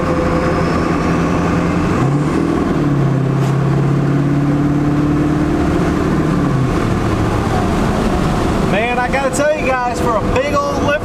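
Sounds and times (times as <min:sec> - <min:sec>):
diesel truck engine drone: 0:00.0 - 0:11.0.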